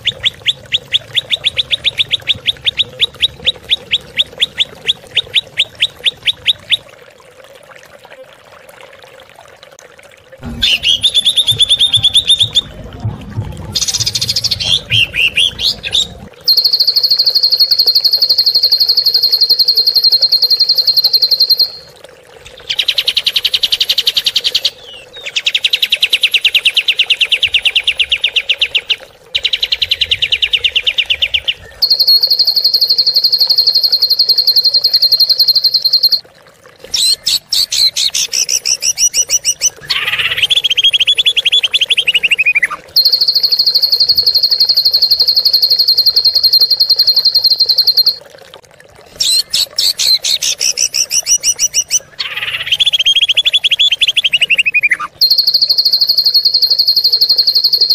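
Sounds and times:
bird rattling trills: 10.4 - 12.8
bird whistled phrase: 13.8 - 21.9, 30.5 - 36.2, 37.0 - 48.2, 49.2 - 57.9.

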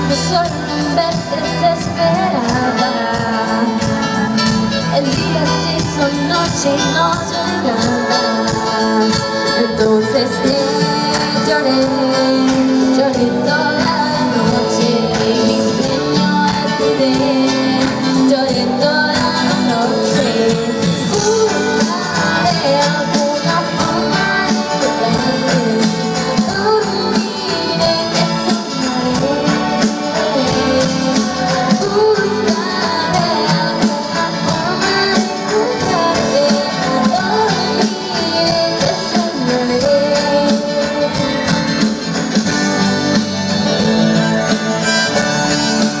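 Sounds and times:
live pop band playing: 0.0 - 46.0.

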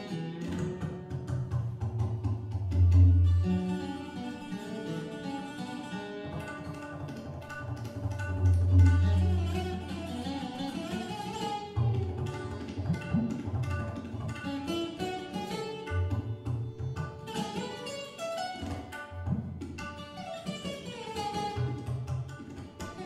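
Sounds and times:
slide guitar gliding melody: 0.0 - 1.8, 2.8 - 23.0
tabla strokes: 0.0 - 4.2, 6.2 - 23.0.

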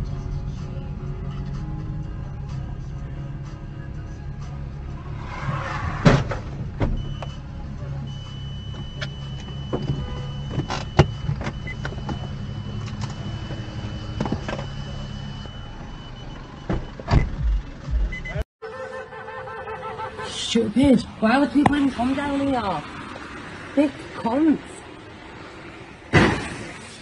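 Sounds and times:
car engine and road noise: 0.0 - 27.0.

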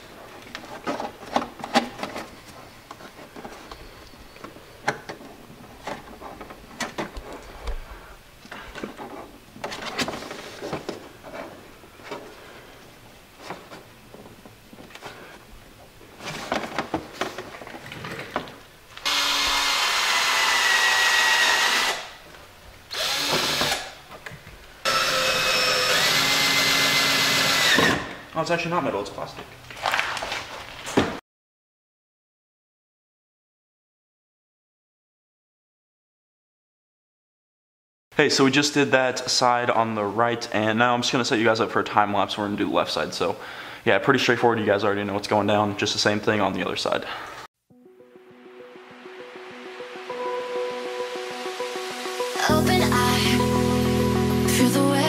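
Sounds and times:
cordless drill boring through plastic: 19.0 - 22.1, 22.9 - 23.9, 24.9 - 28.1.

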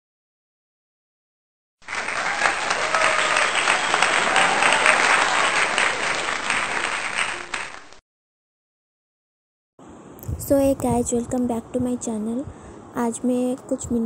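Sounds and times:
crowd applause: 1.8 - 8.0.

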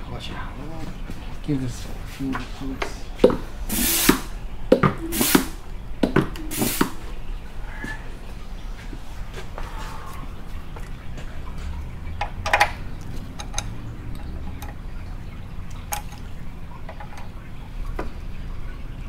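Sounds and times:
air and fluid spurting: 3.6 - 4.4, 5.0 - 5.6, 6.4 - 7.1.

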